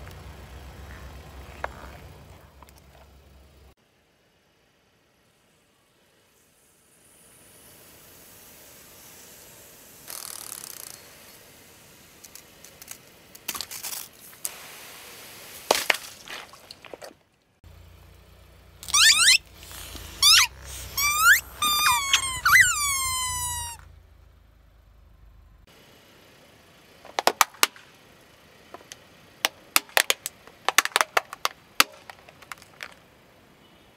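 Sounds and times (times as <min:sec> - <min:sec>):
rubber squeaky toys squeaking: 0:18.8 - 0:23.8
plastic bottles crackling and popping: 0:28.8 - 0:33.0.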